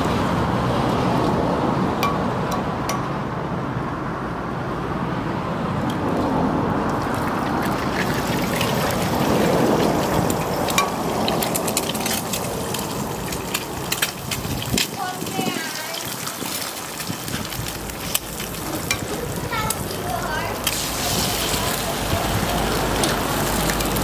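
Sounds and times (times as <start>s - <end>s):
eggs sizzling in oil: 6.9s - 24.0s.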